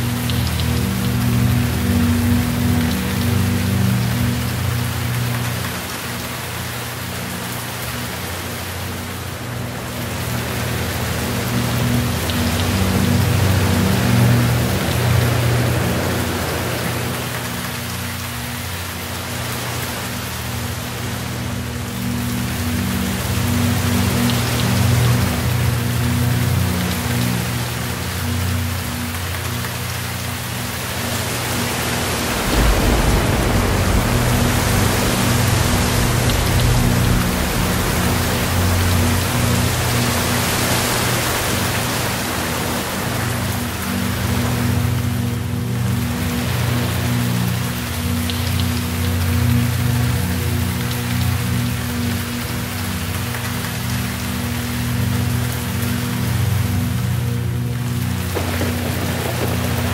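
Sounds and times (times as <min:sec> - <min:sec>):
steady rain falling: 0:00.0 - 0:59.9
low rumble: 0:30.7 - 0:46.8.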